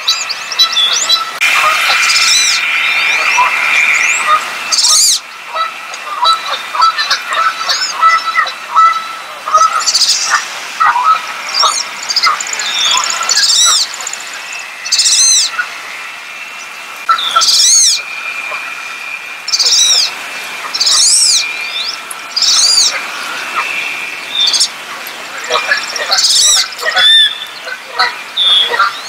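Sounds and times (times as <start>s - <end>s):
duck whistled squeals: 0.6s - 5.2s, 17.1s - 18.7s, 25.5s - 29.0s.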